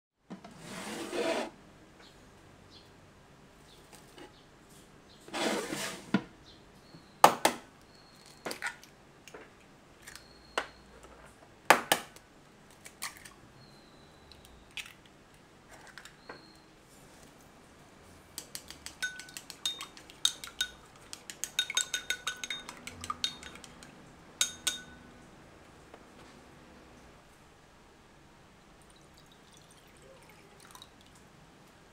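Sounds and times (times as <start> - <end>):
eggs cracking on bowl rim: 18.4 - 25.0.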